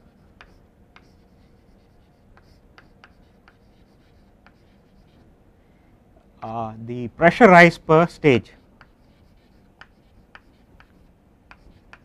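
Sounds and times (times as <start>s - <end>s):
chalk scraping on chalkboard: 0.0s - 5.3s, 8.6s - 12.0s
chalk tapping on board: 0.2s - 5.2s, 8.7s - 12.0s.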